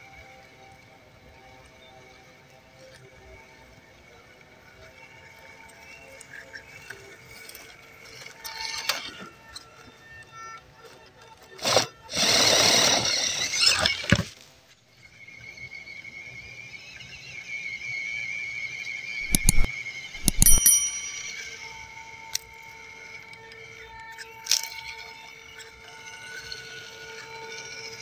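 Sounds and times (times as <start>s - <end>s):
sharp clicks: 19.2s - 21.1s.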